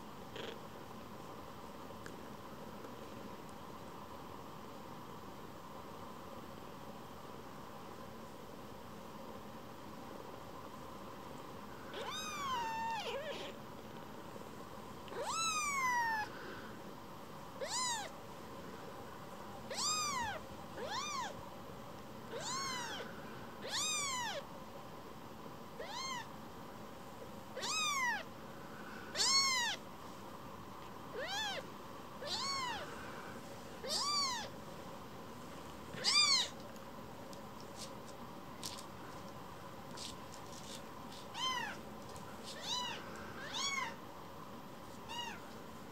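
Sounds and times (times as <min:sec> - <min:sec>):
kitten mewing: 0:11.9 - 0:13.6, 0:15.1 - 0:16.3, 0:17.6 - 0:18.1, 0:19.7 - 0:21.3, 0:22.3 - 0:24.4, 0:25.8 - 0:26.3, 0:27.6 - 0:28.3, 0:29.1 - 0:29.8, 0:31.1 - 0:32.9, 0:33.8 - 0:34.5, 0:36.0 - 0:36.6, 0:42.5 - 0:44.0, 0:45.1 - 0:45.4.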